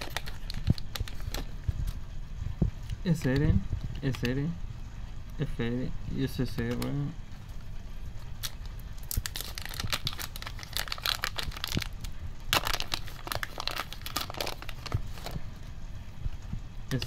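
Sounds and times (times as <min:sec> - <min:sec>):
plastic wrapper tearing and crinkling: 0:00.0 - 0:01.5, 0:08.4 - 0:15.4.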